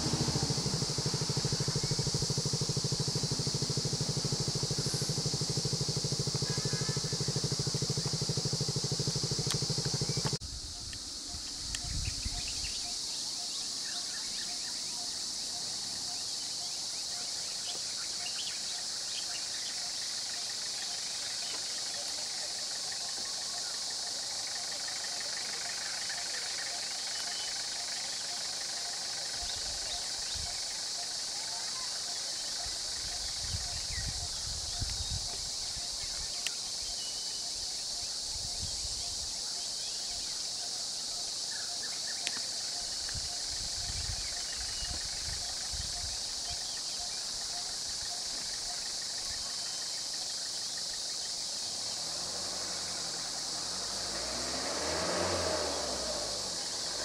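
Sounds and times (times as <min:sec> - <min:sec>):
low rumbles: 0:00.0 - 0:10.8
birds chirping: 0:00.0 - 0:51.8
high-pitched insect chorus: 0:00.0 - 0:57.0.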